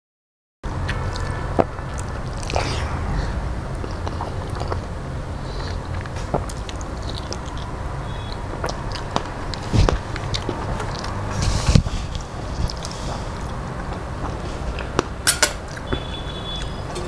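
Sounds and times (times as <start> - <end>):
steady low hum: 0.7 - 14.7
mouth clicks and smacks: 0.8 - 2.6, 5.6 - 7.7, 8.3 - 15.9
man chewing food: 5.5 - 7.7, 8.5 - 15.1.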